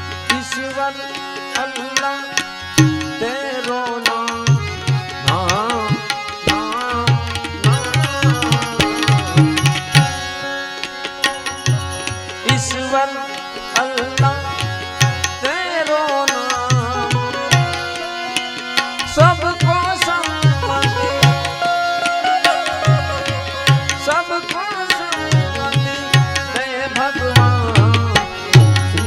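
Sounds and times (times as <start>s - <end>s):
tabla rhythm: 0.0s - 29.0s
sliding melodic instrument: 0.2s - 29.0s.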